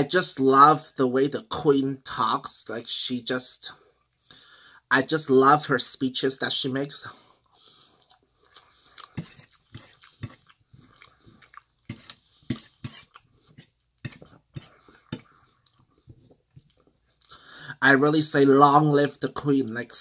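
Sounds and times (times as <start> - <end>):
chewing: 7.4 - 17.4.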